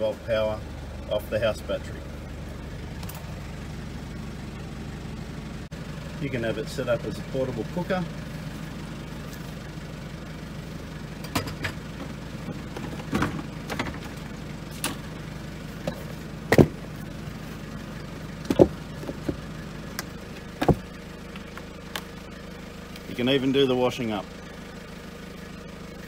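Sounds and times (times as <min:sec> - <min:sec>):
steady low hum: 0:00.0 - 0:26.0
knocks and clunks of handling: 0:11.2 - 0:14.2, 0:15.8 - 0:16.9, 0:18.4 - 0:20.9.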